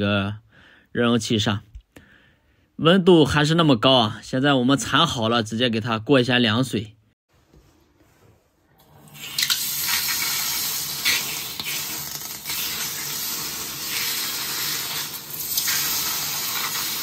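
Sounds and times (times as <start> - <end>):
tap water splashing into basin: 9.2 - 17.0.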